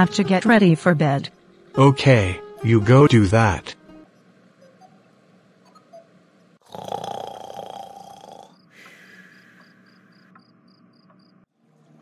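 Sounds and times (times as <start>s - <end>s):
person snoring: 6.6s - 9.1s.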